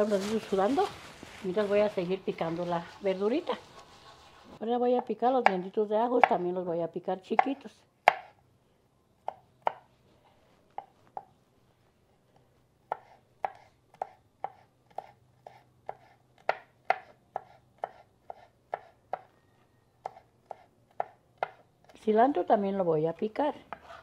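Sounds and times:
knife chopping on wooden board: 0:08.1 - 0:08.3, 0:09.3 - 0:09.8, 0:12.9 - 0:19.3, 0:20.0 - 0:21.6.

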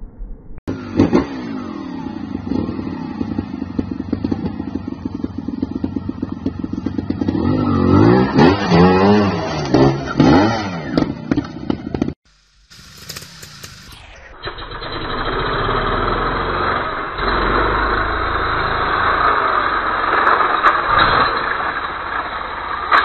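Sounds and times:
motorcycle engine idling and revving: 0:00.6 - 0:23.0.

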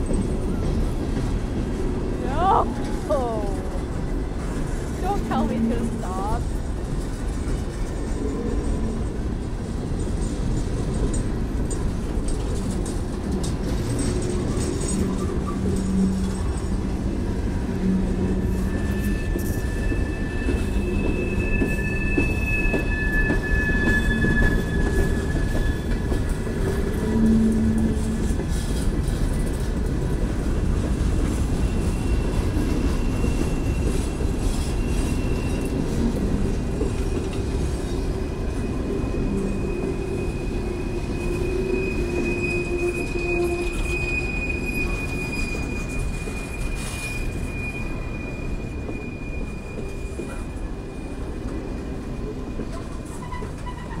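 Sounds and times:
train wheels rumbling on rail: 0:00.0 - 0:54.0
high wheel squeal: 0:17.5 - 0:29.5, 0:31.3 - 0:54.0.

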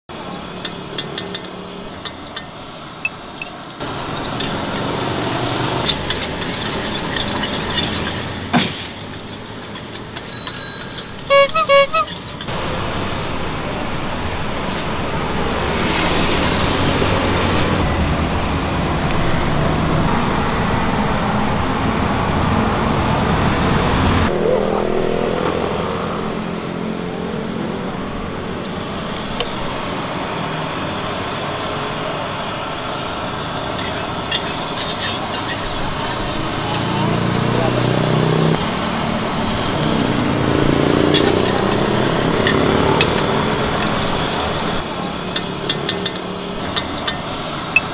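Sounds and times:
street traffic noise: 0:00.0 - 0:47.9
spatula clinking on a wok: 0:00.6 - 0:12.5, 0:33.8 - 0:36.9, 0:39.6 - 0:47.9.

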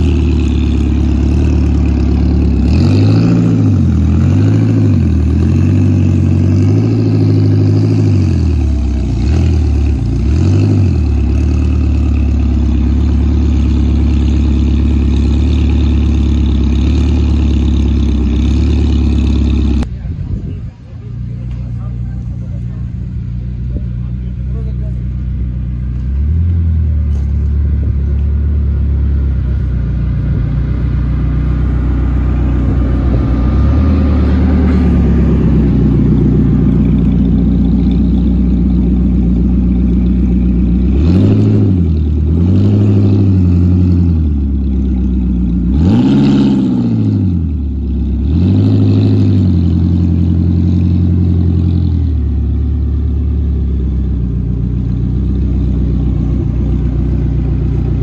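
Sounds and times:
engine revving blips: 0:00.0 - 0:14.5, 0:25.9 - 0:52.6
car engine idling: 0:00.0 - 0:58.0.

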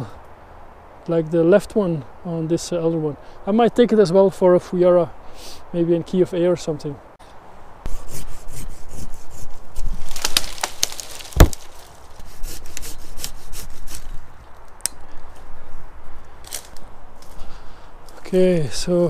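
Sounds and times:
pruning saw cutting a branch: 0:07.9 - 0:14.2.

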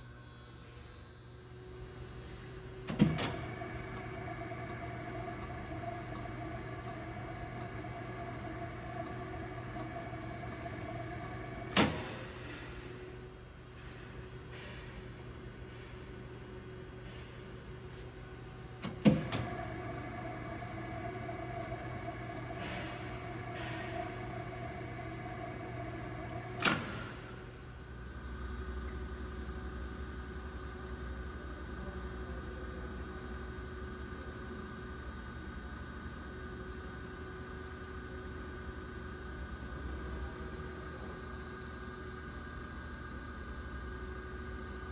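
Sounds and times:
machine humming: 0:00.0 - 0:32.7
high steady machine tone: 0:00.0 - 0:44.9.

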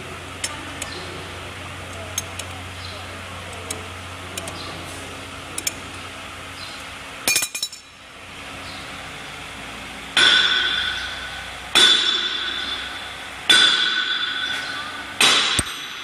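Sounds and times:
ringing metal strikes: 0:07.2 - 0:08.0, 0:10.2 - 0:16.0
metal clinking and rattling: 0:07.3 - 0:08.0.

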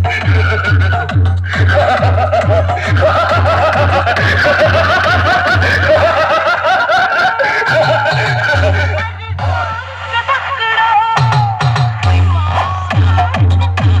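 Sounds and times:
chopped laughing voice sample: 0:00.0 - 0:10.6
heavy pounding bass beats: 0:00.0 - 0:14.0.

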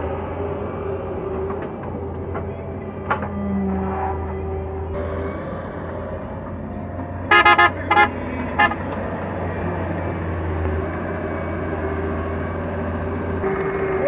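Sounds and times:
diesel engine running: 0:00.0 - 0:14.0
vehicle horn toots: 0:07.3 - 0:08.8.

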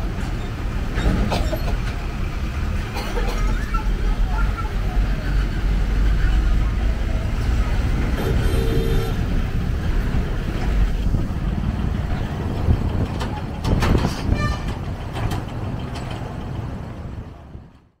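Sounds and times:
vehicles knocking over crossing: 0:00.0 - 0:17.9
diesel engines rumbling: 0:00.0 - 0:18.0
vehicle horn honk: 0:08.2 - 0:09.3.

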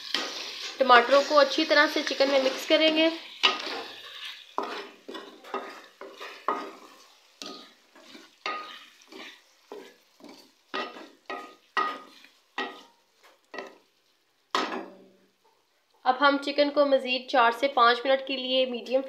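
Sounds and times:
spatula scraping frying pan: 0:00.0 - 0:14.0
food sizzling in oil: 0:00.0 - 0:19.0.

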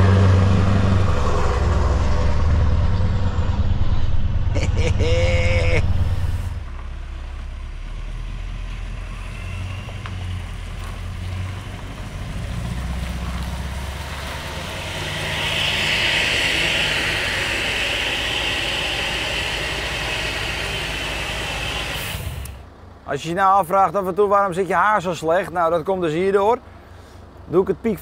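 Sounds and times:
truck engine droning: 0:00.0 - 0:28.0
rushing hiss: 0:13.2 - 0:22.6.

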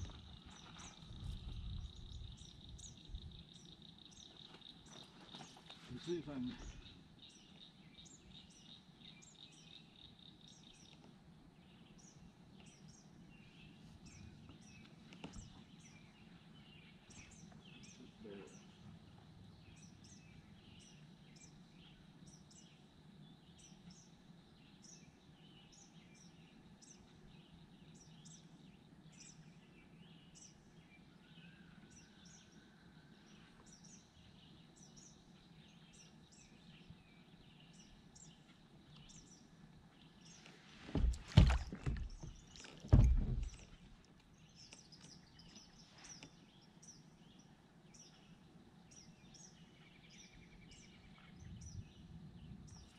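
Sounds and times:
birds chirping: 0:00.0 - 0:52.9
soft knock: 0:40.9 - 0:43.6.

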